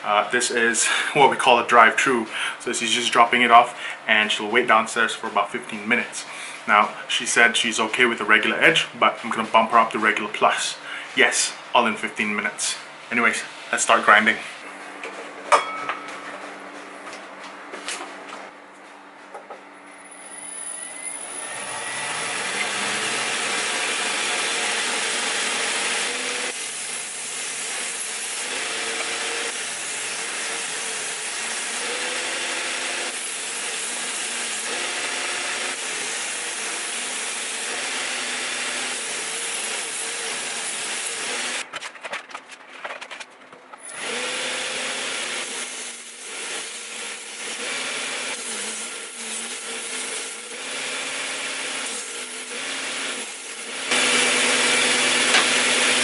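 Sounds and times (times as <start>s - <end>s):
grinder motor hum: 20.0s - 41.6s, 43.8s - 56.0s
knife grinding on belt grinder: 43.8s - 56.0s.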